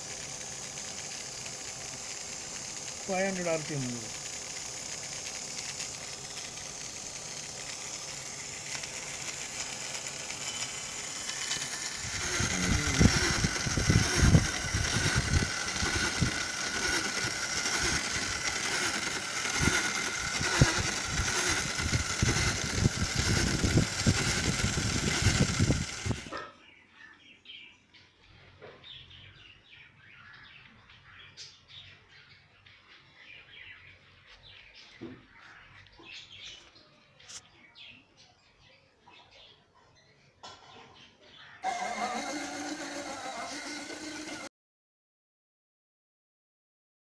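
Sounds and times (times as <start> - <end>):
electric motor whine: 0.0 - 26.4, 41.6 - 44.5.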